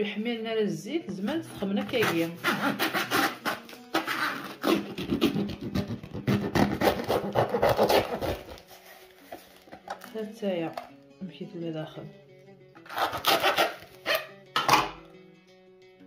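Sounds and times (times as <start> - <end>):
quiet background music: 0.0 - 16.0
rubbing and scraping strokes: 1.8 - 5.4.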